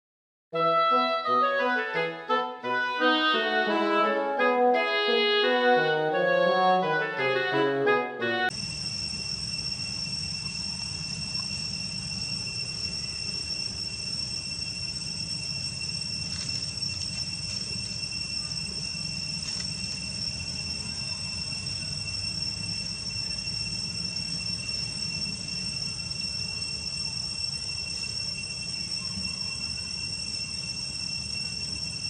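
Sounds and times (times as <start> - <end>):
high-pitched insect chorus: 8.5 - 32.0.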